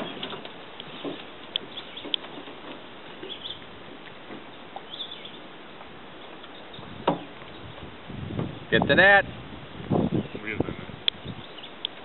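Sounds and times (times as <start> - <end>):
steady outdoor hiss: 0.0 - 12.0
faint bird chirps: 4.9 - 5.4.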